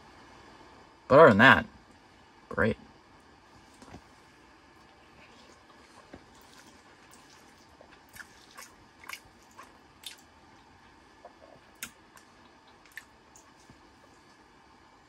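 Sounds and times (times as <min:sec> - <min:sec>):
faint chewing: 0:03.6 - 0:14.4.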